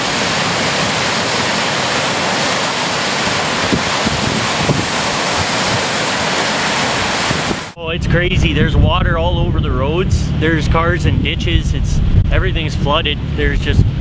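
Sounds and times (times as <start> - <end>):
waves breaking on shore: 0.0 - 7.8
wind buffeting microphone: 3.2 - 6.0, 6.9 - 14.0.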